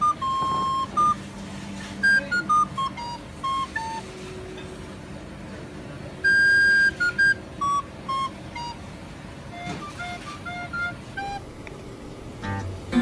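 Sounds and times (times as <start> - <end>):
electronic beep melody: 0.0 - 1.3, 2.0 - 4.1, 6.2 - 8.8, 9.5 - 11.4.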